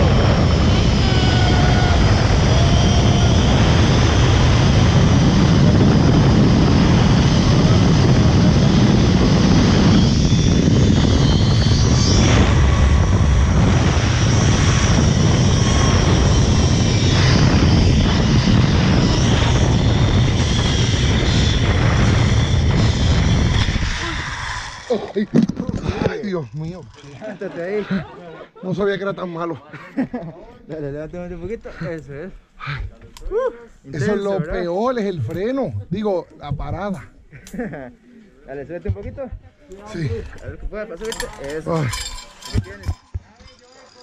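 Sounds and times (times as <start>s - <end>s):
wind buffeting microphone: 0.0s - 27.0s
zip-line pulleys whirring on cable: 0.0s - 27.8s, 40.0s - 44.0s.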